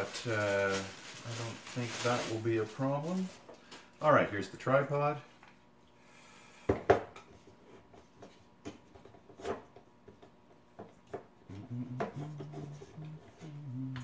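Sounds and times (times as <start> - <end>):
low humming tone: 11.4 - 14.0.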